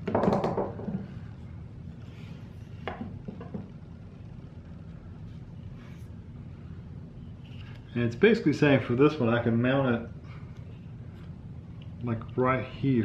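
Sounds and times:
frame knocking on tabletop: 0:00.0 - 0:01.1, 0:02.8 - 0:03.7.

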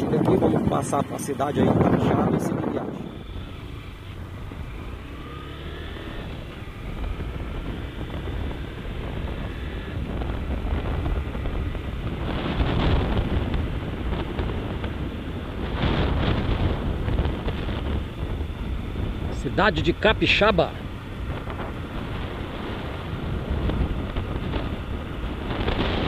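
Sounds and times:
wind rushing over microphone: 0:00.0 - 0:26.0
motorcycle engine accelerating: 0:00.1 - 0:26.0.

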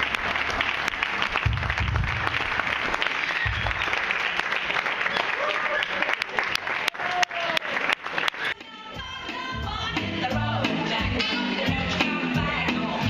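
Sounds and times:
crowd clapping and calling out: 0:00.0 - 0:09.0
recorded song with singing: 0:08.5 - 0:13.0.

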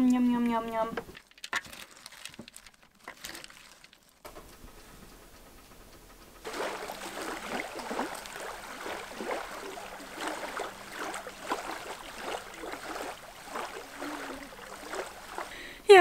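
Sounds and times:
small waves lapping on shore: 0:06.4 - 0:15.8.

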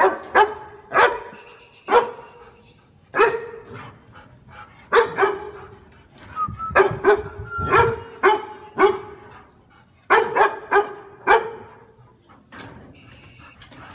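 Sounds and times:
large dog barking: 0:00.0 - 0:02.3, 0:03.1 - 0:04.0, 0:04.9 - 0:05.8, 0:06.8 - 0:09.3, 0:10.1 - 0:12.0.

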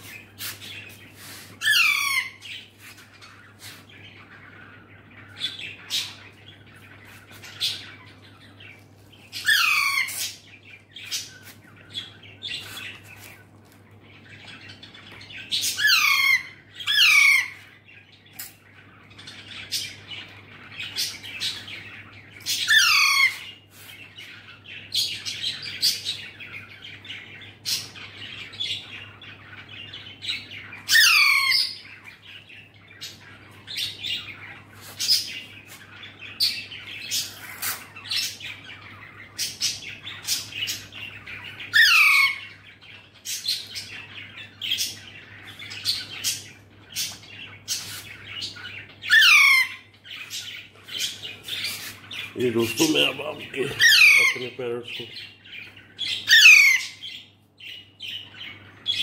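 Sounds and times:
parakeet screeching: 0:01.6 - 0:02.6, 0:09.4 - 0:10.4, 0:15.6 - 0:17.6, 0:22.6 - 0:23.5, 0:30.9 - 0:31.9, 0:41.7 - 0:42.6, 0:48.6 - 0:49.9, 0:53.0 - 0:54.6, 0:56.1 - 0:57.0
parakeet chirps and clicks: 0:18.3 - 0:18.6.

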